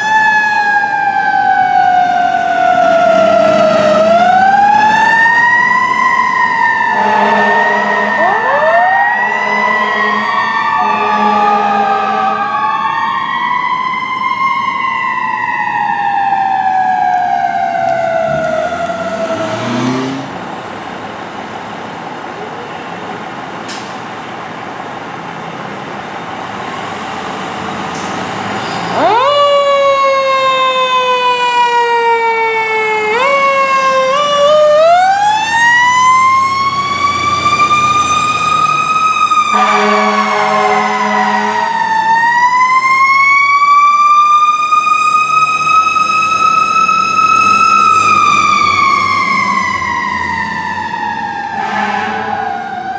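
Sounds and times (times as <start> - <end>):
siren wailing: 0.0 - 20.3, 28.8 - 52.9
horn blast: 6.9 - 8.3, 9.3 - 12.4, 39.5 - 41.7, 51.6 - 52.5.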